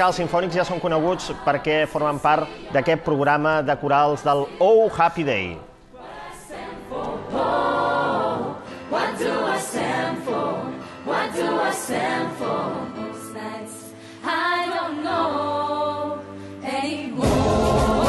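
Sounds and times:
mixed choir singing: 0:00.0 - 0:18.0.

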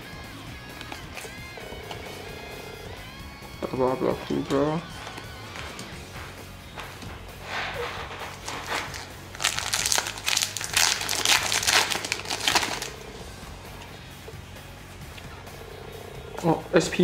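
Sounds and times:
foil pack crinkling: 0:07.5 - 0:13.1.

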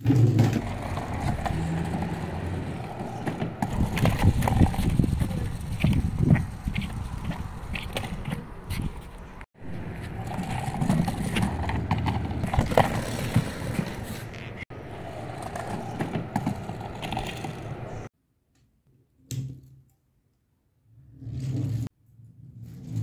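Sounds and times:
toy bike rolling on planks: 0:00.0 - 0:09.2, 0:09.9 - 0:18.1.

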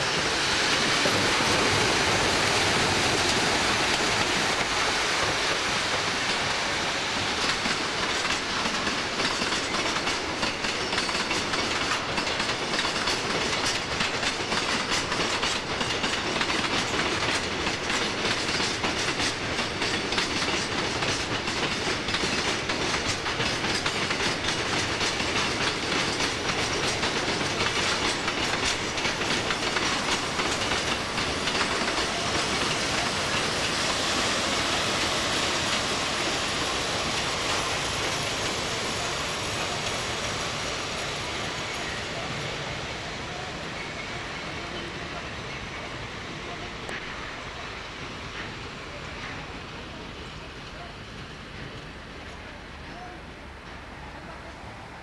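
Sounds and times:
freight train rolling rumble: 0:00.0 - 0:55.0
wheels clicking over rail joints: 0:07.1 - 0:42.4.

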